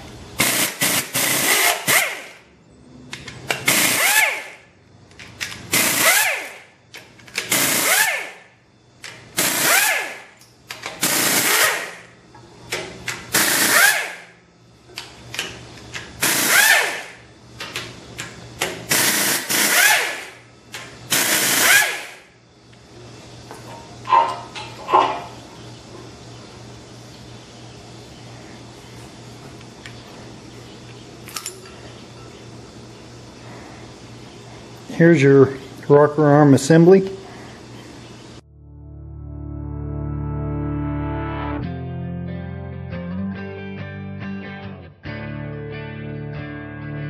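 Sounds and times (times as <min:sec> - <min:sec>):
pneumatic ratchet whining: 0:00.4 - 0:02.3, 0:03.5 - 0:04.6, 0:05.7 - 0:06.6, 0:07.2 - 0:08.4, 0:09.4 - 0:12.0, 0:13.3 - 0:14.3, 0:16.2 - 0:17.2, 0:18.8 - 0:20.4, 0:21.1 - 0:22.2.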